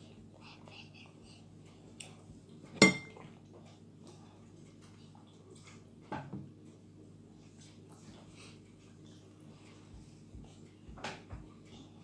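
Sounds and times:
tableware clinking: 0:02.8 - 0:03.2.

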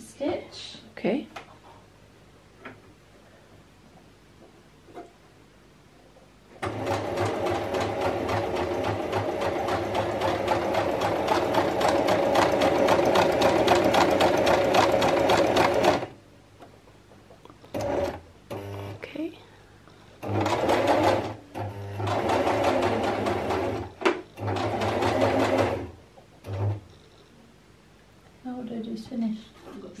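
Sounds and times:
sewing machine clattering: 0:06.6 - 0:16.1, 0:20.2 - 0:21.4, 0:22.0 - 0:25.9.

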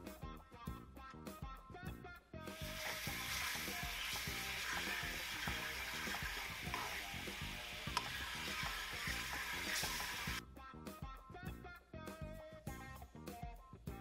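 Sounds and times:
light background music: 0:00.0 - 0:14.0
glaze bubbling and sizzling: 0:02.6 - 0:10.4.

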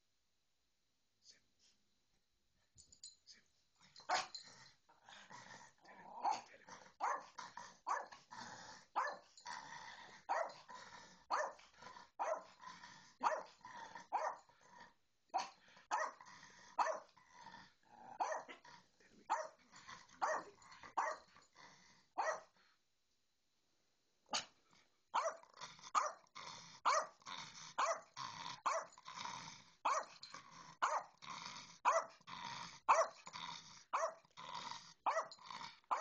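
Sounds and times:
small dog barking and growling: 0:04.0 - 0:05.3, 0:06.0 - 0:14.6, 0:15.3 - 0:17.3, 0:17.9 - 0:21.4, 0:22.2 - 0:22.5, 0:25.2 - 0:36.0.

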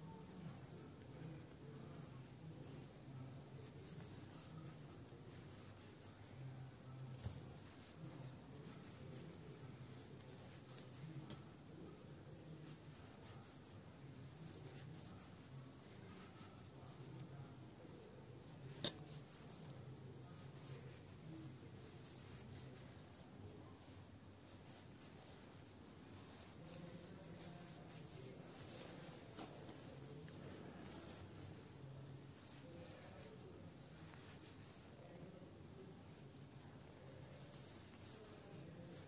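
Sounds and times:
crochet hook rubbing yarn: 0:36.0 - 0:39.0.

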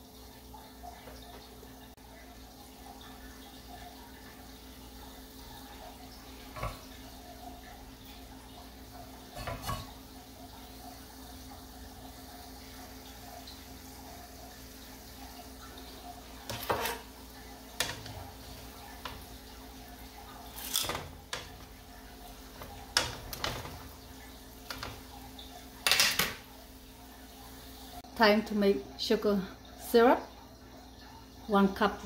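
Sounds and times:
oil sizzling in a wok: 0:00.0 - 0:28.2.

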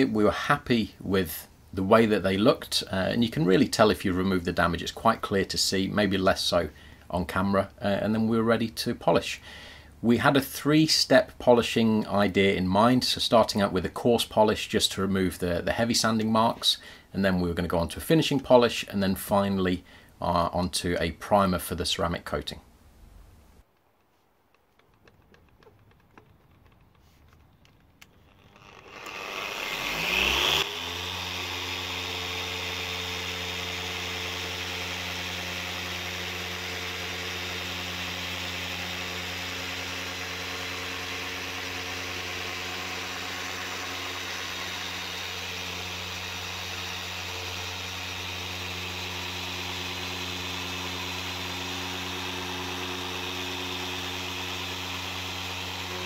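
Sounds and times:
machine polisher whining and humming: 0:28.4 - 0:56.0.

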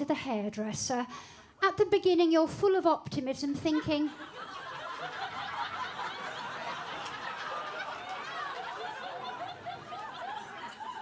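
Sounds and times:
audience laughing: 0:03.7 - 0:11.0.

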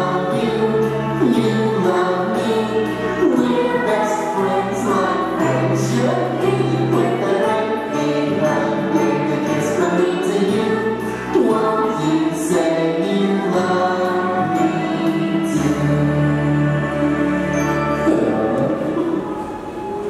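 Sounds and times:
voices singing together: 0:00.0 - 0:20.0
held bass notes: 0:13.5 - 0:20.0.

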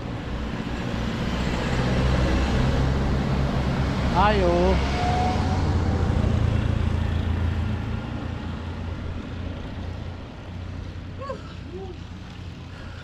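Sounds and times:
passing car road noise: 0:00.0 - 0:13.0.

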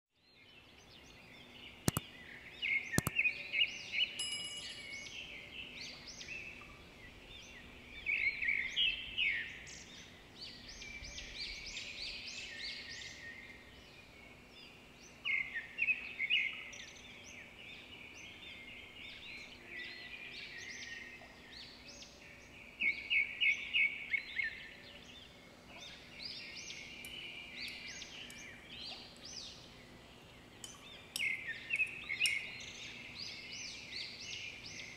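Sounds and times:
birds chirping: 0:00.3 - 0:34.9
faint steady hum: 0:00.4 - 0:34.9
sharp clicks: 0:01.8 - 0:02.1, 0:03.0 - 0:03.2.

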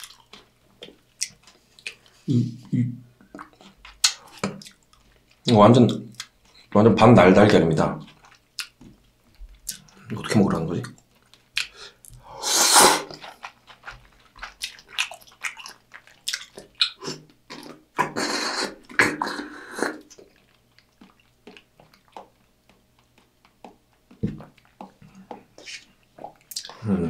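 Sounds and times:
wet chewing: 0:00.0 - 0:02.3, 0:03.2 - 0:06.8, 0:07.9 - 0:26.8
slurping noodles: 0:12.3 - 0:20.5.

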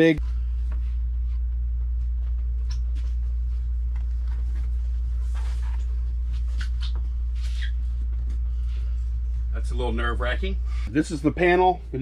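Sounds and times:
steady low hum: 0:00.0 - 0:12.0
faint rustles and light knocks: 0:00.6 - 0:09.5.

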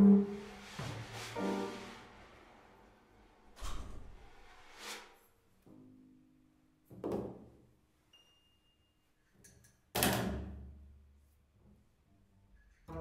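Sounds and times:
free improvised jazz ensemble: 0:00.0 - 0:02.2.

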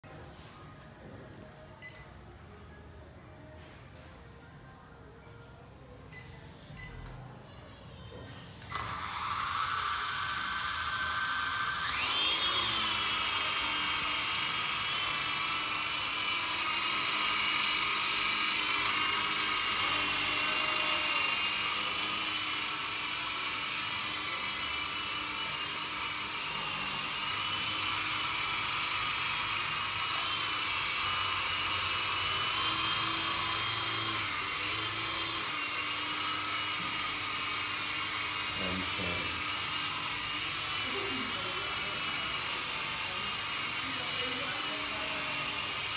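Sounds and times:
toy helicopter motors whining: 0:08.7 - 0:45.9.

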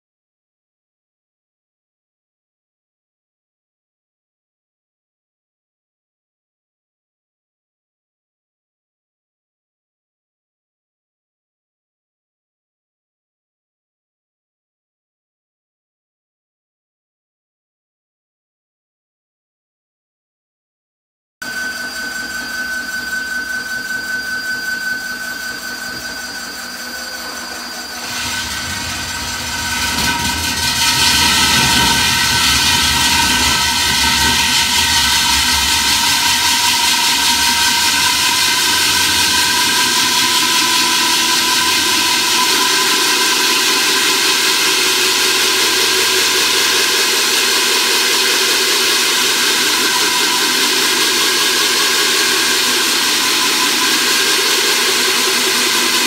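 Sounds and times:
core drill whining: 0:21.5 - 0:56.0
drill grinding through masonry: 0:21.6 - 0:56.0.

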